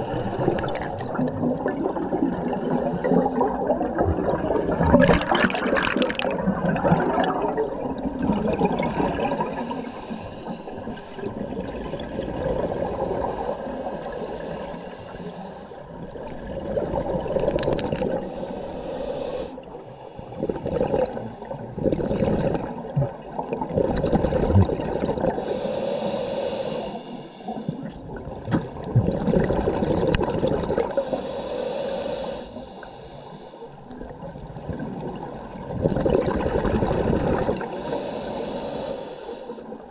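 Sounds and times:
exhaled air bubbling: 0:00.0 - 0:39.9
regulator inhale hiss: 0:09.2 - 0:11.4, 0:12.7 - 0:15.8, 0:18.2 - 0:21.9, 0:25.4 - 0:28.0, 0:30.9 - 0:34.0, 0:37.6 - 0:39.9.

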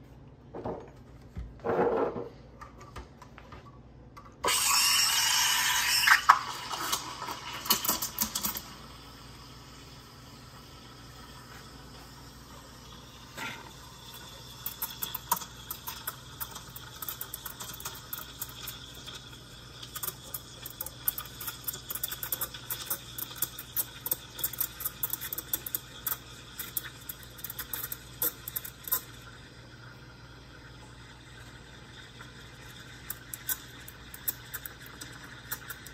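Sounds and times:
steam wand steaming milk: 0:04.4 - 0:16.6.

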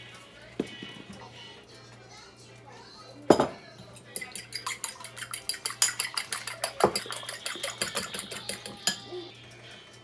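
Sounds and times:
utensil clinking against mixing bowl: 0:03.3 - 0:09.1.

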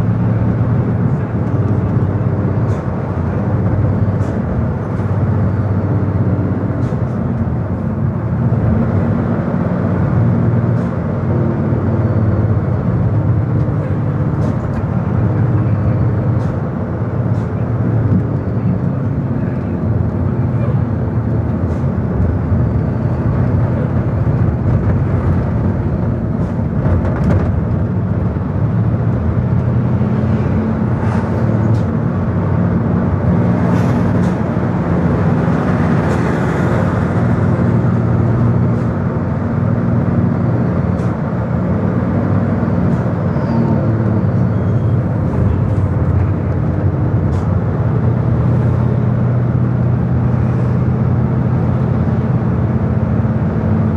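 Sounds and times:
truck passing: 0:00.0 - 0:53.9
tyres and wind rushing: 0:00.0 - 0:53.9
vehicle engine hum: 0:00.0 - 0:53.9.

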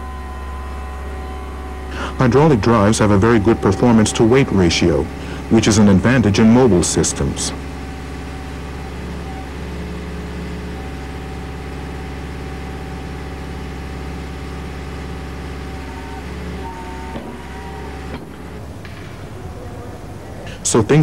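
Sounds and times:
machine engine humming steadily: 0:00.0 - 0:21.0.

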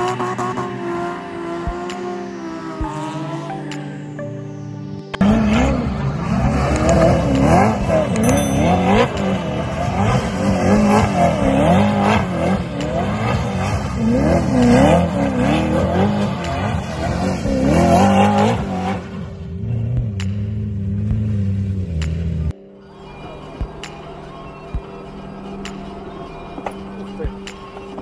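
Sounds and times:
car engine revving hard: 0:05.2 - 0:22.3.

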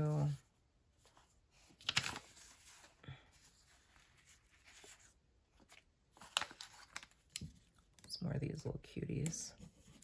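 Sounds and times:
paper sticker sheet rustling: 0:00.0 - 0:08.1.

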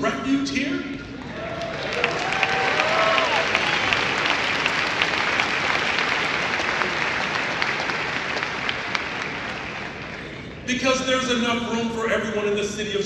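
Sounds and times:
audience applauding: 0:01.3 - 0:10.4.

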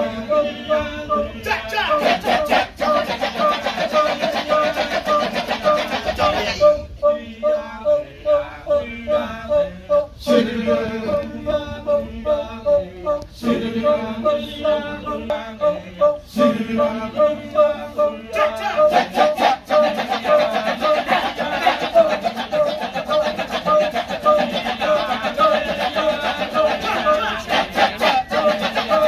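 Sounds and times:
men singing: 0:00.0 - 0:29.0
repeating pitched percussion rhythm: 0:01.5 - 0:06.8, 0:18.4 - 0:29.0
sharp percussion stroke: 0:02.0 - 0:06.6, 0:18.4 - 0:29.0.

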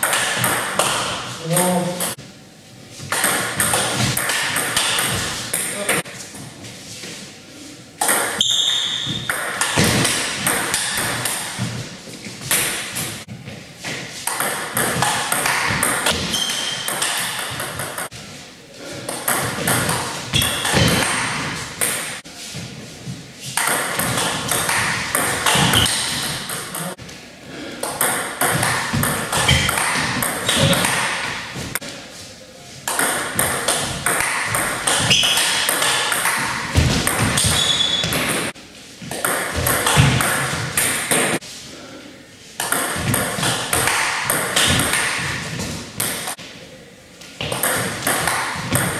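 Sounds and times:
ping pong ball clicking off bats: 0:14.3 - 0:18.1.

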